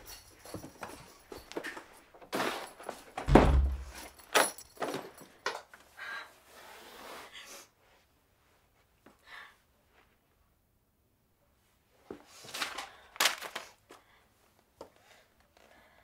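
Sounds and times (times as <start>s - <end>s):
door shutting with a thud: 3.2s - 4.1s.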